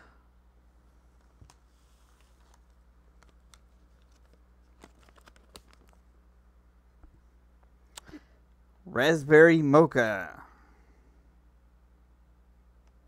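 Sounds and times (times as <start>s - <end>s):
low steady hum: 0.0s - 13.0s
packaging clicks and crinkles: 2.2s - 6.0s.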